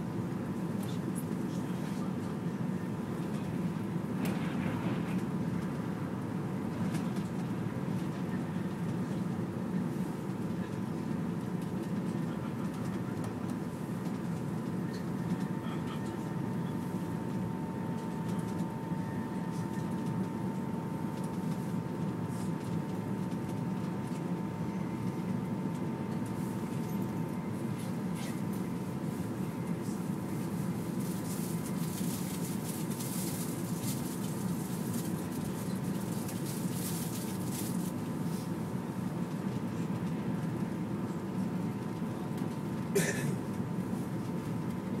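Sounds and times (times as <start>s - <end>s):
train cabin rumble: 1.4s - 35.2s.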